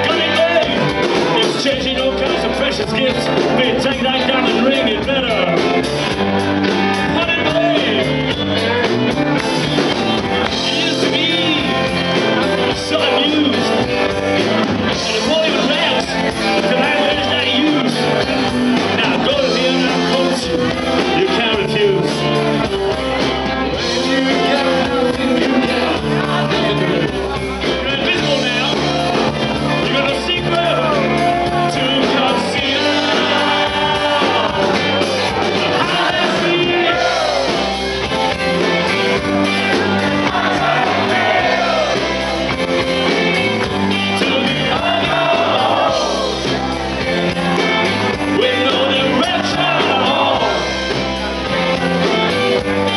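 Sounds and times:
man singing: 0.0 - 5.8, 7.0 - 8.8, 10.5 - 11.9, 12.6 - 13.8, 14.9 - 18.2, 18.8 - 22.5, 23.7 - 29.1, 29.7 - 37.6, 42.8 - 46.3, 48.2 - 50.6
bass guitar: 0.0 - 52.9
drums: 0.0 - 52.9
electric guitars: 0.0 - 52.9.

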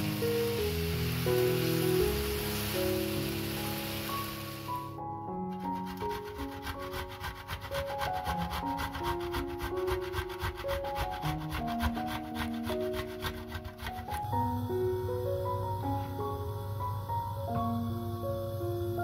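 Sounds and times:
soft background music: 0.0 - 19.0
garlic scraping on metal grater: 5.6 - 14.3.

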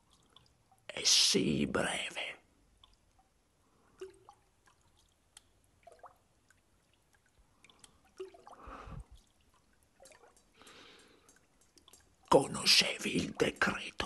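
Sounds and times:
faint clicks: 9.2 - 12.4.

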